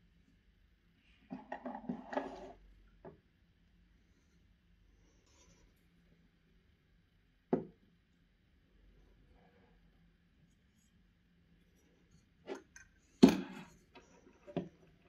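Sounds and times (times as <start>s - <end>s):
knock on table: 7.5s - 7.8s.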